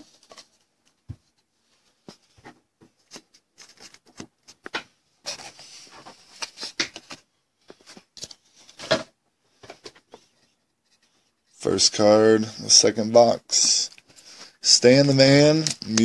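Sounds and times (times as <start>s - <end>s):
hands handling cardboard box: 2.0s - 11.1s.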